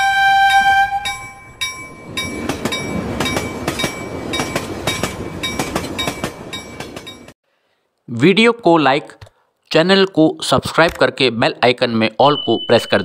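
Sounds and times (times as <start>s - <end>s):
train rumbling past: 0.5s - 7.4s
ringing chime tone: 0.6s - 7.3s
wheels clacking on rail joints: 1.1s - 7.4s.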